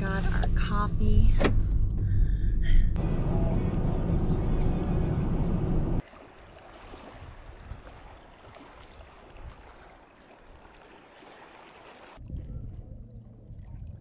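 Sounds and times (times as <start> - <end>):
road rumble inside car: 0.0 - 6.0
lake waves lapping on rocks: 6.0 - 12.2.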